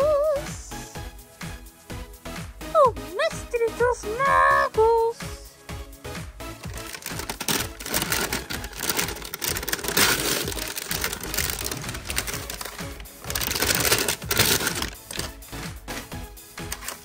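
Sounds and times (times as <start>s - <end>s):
background music: 0.0s - 17.0s
plastic and cardboard crackling: 6.6s - 17.0s.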